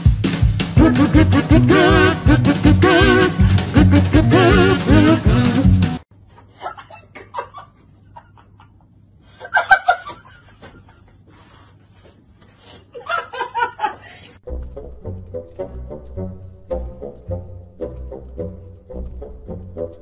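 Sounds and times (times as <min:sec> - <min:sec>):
music with low steady tones: 0:00.0 - 0:06.0, 0:14.4 - 0:20.0
woman laughing: 0:00.8 - 0:05.2, 0:06.4 - 0:11.1, 0:12.9 - 0:14.4.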